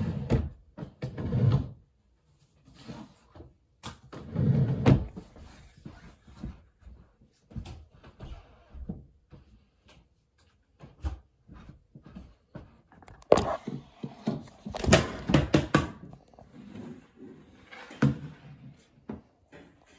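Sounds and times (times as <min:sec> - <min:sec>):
knocks and clatter of handling: 0:10.8 - 0:16.5.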